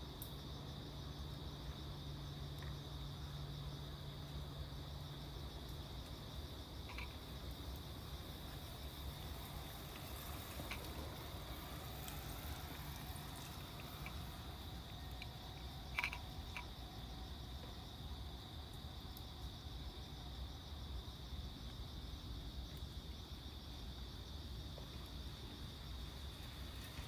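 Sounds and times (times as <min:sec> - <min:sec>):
crickets trilling: 0:00.0 - 0:27.0
cat eating from a dish: 0:06.6 - 0:07.9, 0:09.1 - 0:19.5.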